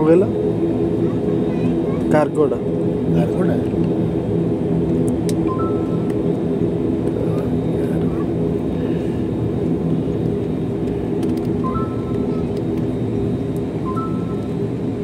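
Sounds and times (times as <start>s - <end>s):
jet engines idling: 0.0s - 15.0s
two-note beeps: 13.8s - 14.5s.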